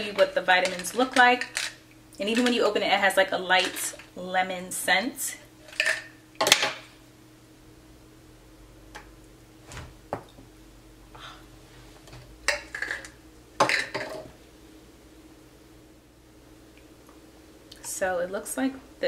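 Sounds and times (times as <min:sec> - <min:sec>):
capsules rattling in bottle: 0:00.0 - 0:02.8, 0:03.6 - 0:04.0.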